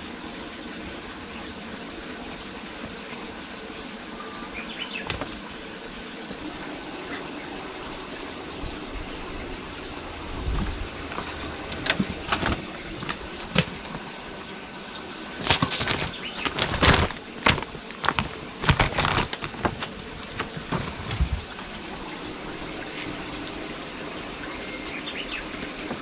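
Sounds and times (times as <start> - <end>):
steady background hiss: 0.0 - 26.0
claws scrabbling: 5.0 - 5.4, 10.4 - 14.1, 15.4 - 21.7
plastic tarpaulin crinkling: 5.0 - 5.4, 10.4 - 14.2, 15.3 - 21.8.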